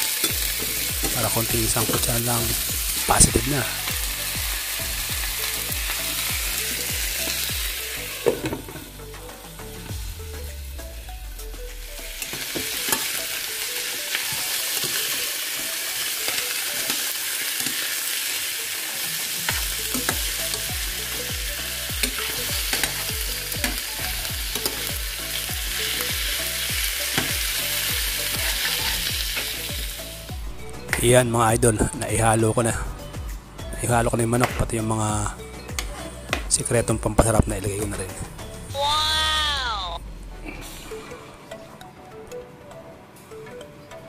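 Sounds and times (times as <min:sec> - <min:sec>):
chicken sizzling in a frying pan: 0:00.0 - 0:08.6, 0:12.1 - 0:30.3.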